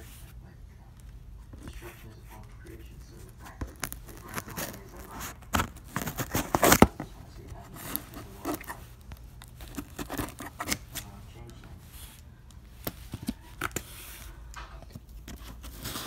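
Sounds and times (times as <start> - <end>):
tape and cardboard tearing: 3.4 - 7.0, 9.5 - 11.1.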